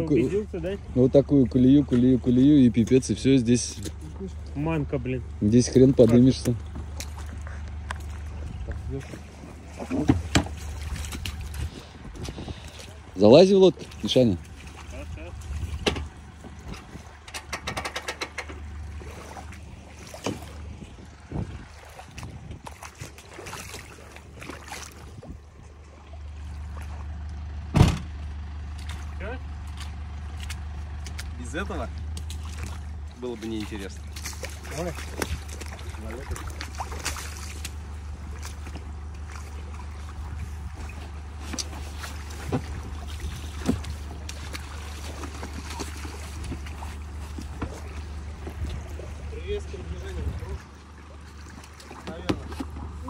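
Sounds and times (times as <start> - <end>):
vehicle engine idling: 0.0 - 53.0
knocks: 17.3 - 18.6
thump: 27.7 - 28.1.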